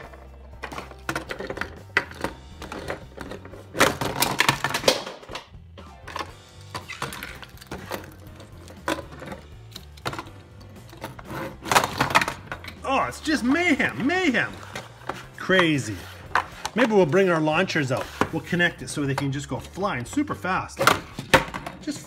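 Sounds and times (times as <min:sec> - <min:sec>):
toy trucks clattering on plastic: 0:00.0 - 0:05.5, 0:06.1 - 0:12.8
background music: 0:00.0 - 0:22.0.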